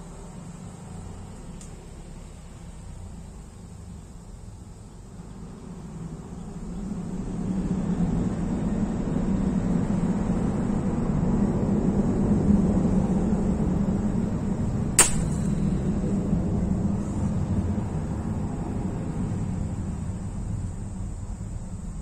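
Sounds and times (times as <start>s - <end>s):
steady low rumble: 3.8s - 22.0s
airgun shot crack: 15.0s - 15.9s.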